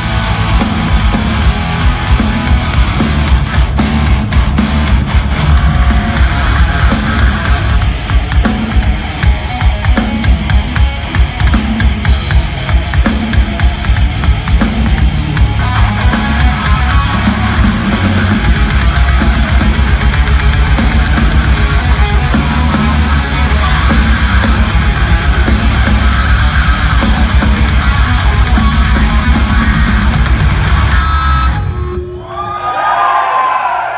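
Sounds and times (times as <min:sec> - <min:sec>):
hard rock band playing: 0:00.0 - 0:32.2
crowd whooping: 0:28.8 - 0:33.9.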